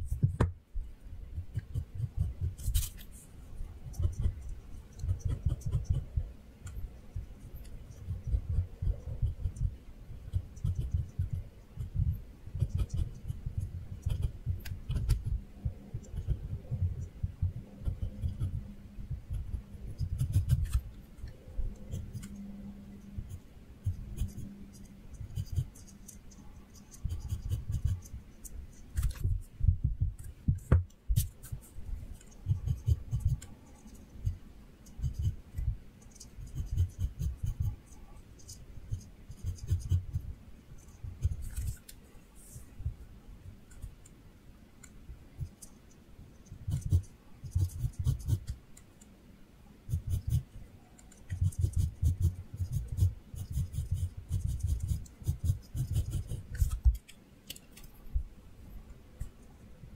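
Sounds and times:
pencil scratching on paper: 3.9 - 6.1, 10.3 - 12.0, 12.6 - 15.4, 17.8 - 18.6, 19.3 - 20.9, 23.2 - 28.5, 31.2 - 34.0, 36.2 - 37.8, 38.4 - 40.2, 46.6 - 48.6, 51.3 - 56.8.

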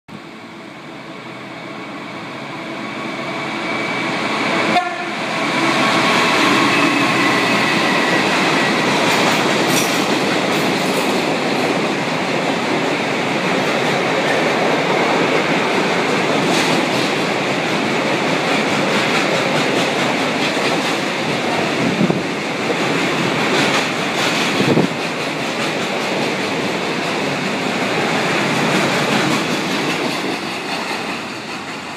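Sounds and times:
train wheels on rails: 0.7 - 31.9
locomotive horn: 4.5 - 8.4.

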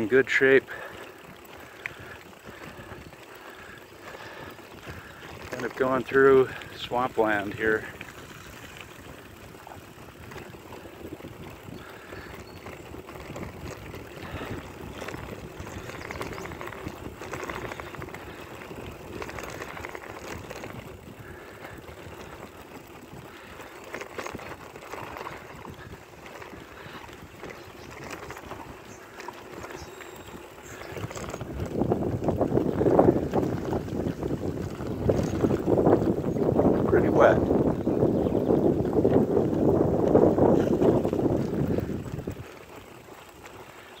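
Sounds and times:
bicycle tyres crunching on gravel: 0.0 - 44.0
bike clicks and rattles: 0.0 - 44.0
wind on microphone: 7.5 - 42.6.

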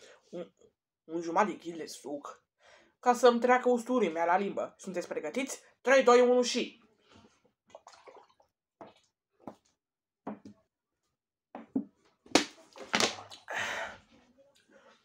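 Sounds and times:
person gulping fizzy drink: 7.7 - 9.1, 12.8 - 13.6
breathy gasps: 13.4 - 14.1.

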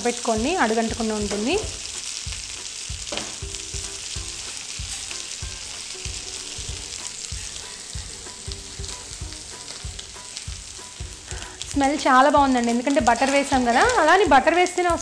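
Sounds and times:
chicken sizzling in a pan: 0.0 - 15.0.

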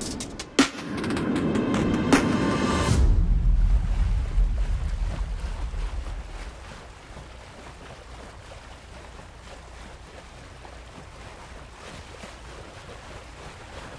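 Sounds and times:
low rumble: 0.0 - 7.0
wind: 0.0 - 13.9
sea water washing: 0.6 - 13.9.

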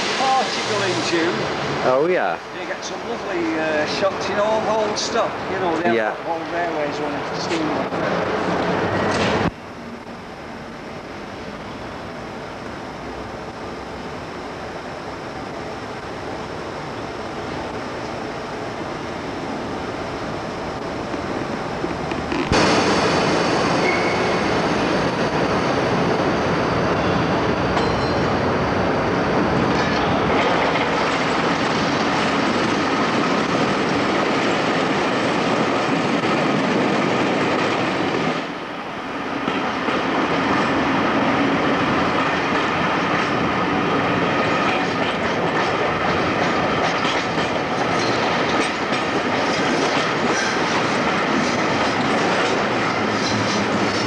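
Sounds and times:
train wheels rumbling on track: 0.0 - 54.0
clickety-clack over rail joints: 7.0 - 9.5, 29.7 - 38.5, 41.7 - 54.0
wheel squeal: 23.8 - 24.4.

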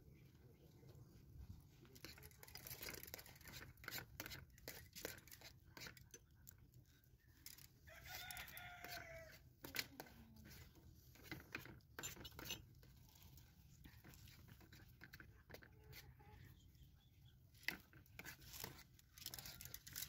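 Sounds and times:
faint rooster crowing: 7.8 - 9.5.

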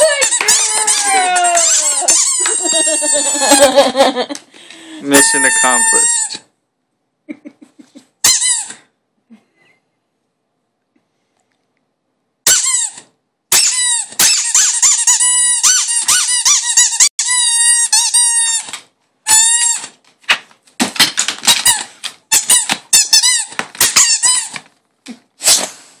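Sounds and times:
squeaky toy squealing: 0.0 - 3.7, 5.0 - 6.5, 8.2 - 8.8, 12.5 - 18.7, 19.3 - 19.9, 21.6 - 24.6.

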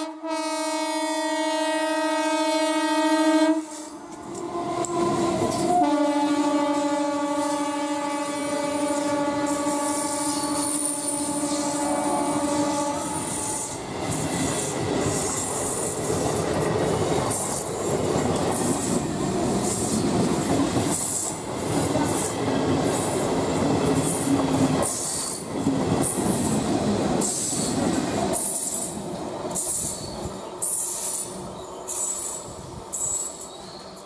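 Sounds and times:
train horn: 0.0 - 13.8
train wheels rumbling on rails: 3.6 - 34.0.

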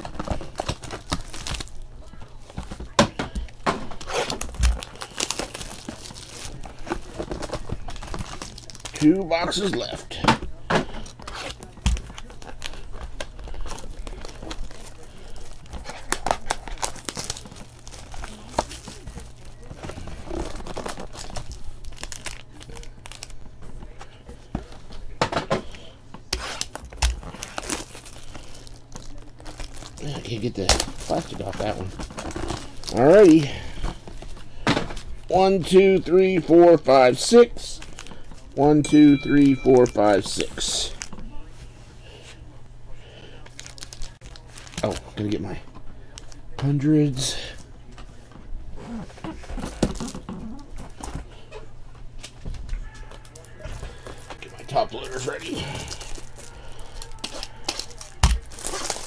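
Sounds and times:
foil packs rustling and crinkling: 0.0 - 41.3, 43.3 - 48.2, 48.9 - 51.4, 53.1 - 59.0.

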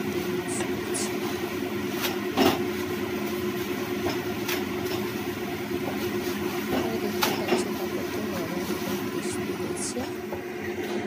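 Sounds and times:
steady mechanical hum: 0.0 - 11.0.

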